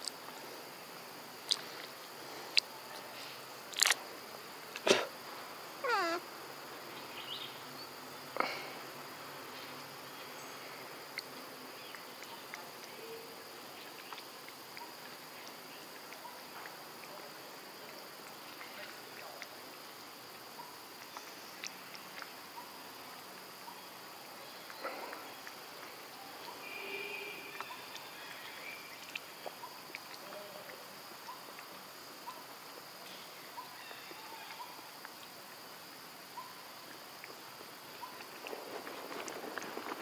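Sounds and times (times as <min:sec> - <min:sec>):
high insect drone: 0:00.0 - 0:40.0
faint call: 0:05.8 - 0:06.3, 0:26.2 - 0:28.8.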